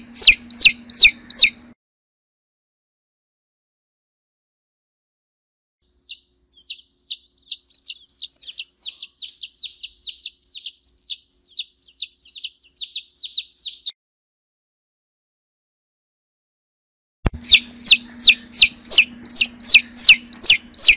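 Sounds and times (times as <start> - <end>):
baby chick peeping: 0.0 - 1.8, 5.8 - 14.0, 17.3 - 20.9.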